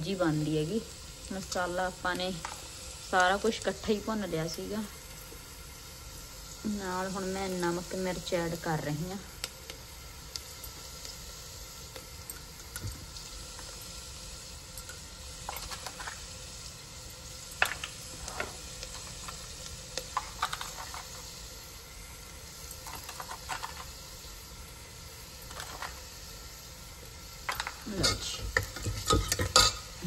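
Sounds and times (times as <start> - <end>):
spices sizzling in oil: 0.0 - 30.0
metal ladle scraping pot: 28.0 - 29.9.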